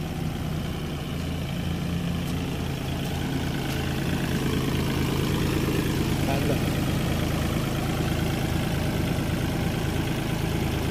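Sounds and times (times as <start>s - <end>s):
tractor diesel engine running: 0.0s - 10.9s.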